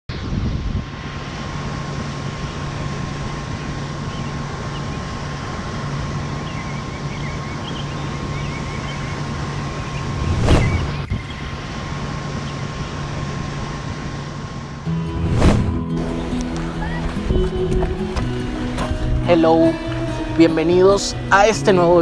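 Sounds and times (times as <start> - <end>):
boat motor running: 0.8 - 22.0
loud whoosh: 9.8 - 11.2, 14.9 - 16.4.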